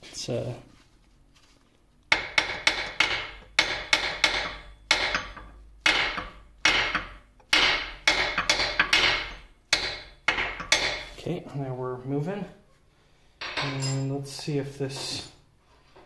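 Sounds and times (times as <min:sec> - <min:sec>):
hammer striking steel punch: 0:02.1 - 0:11.1.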